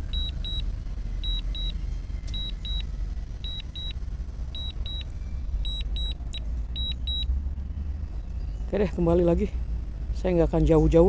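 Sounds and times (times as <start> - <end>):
high double alarm beeps: 0.0 - 0.6, 1.2 - 4.0, 4.6 - 6.2, 6.8 - 7.3
low steady rumble: 0.0 - 11.0.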